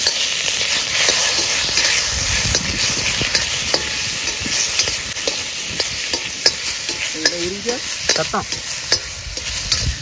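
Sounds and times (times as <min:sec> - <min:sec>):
meat sizzling in a pan: 0:00.0 - 0:10.0.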